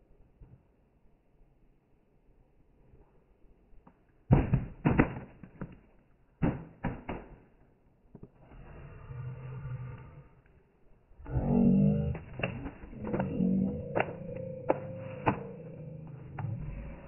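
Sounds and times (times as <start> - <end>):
faint low hum: 7.7 - 17.0.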